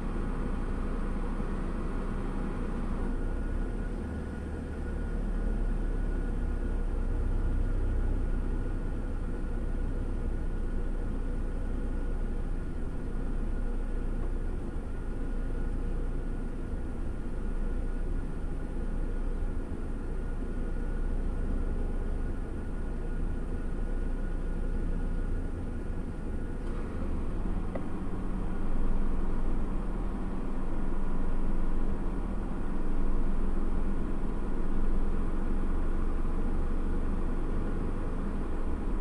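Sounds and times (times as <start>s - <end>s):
faint steady whine: 0.0s - 39.0s
vehicle idling rumble from cab: 0.0s - 39.0s.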